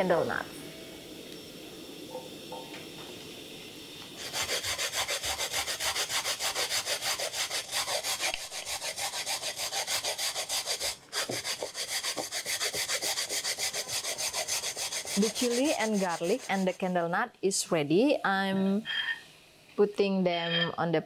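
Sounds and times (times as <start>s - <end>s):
coconut grated on steel rasp: 4.2s - 16.9s.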